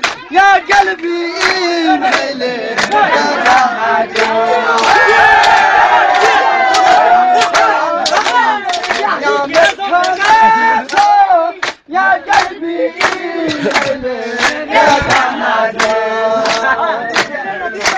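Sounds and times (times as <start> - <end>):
men singing in chorus: 0.3 - 17.9.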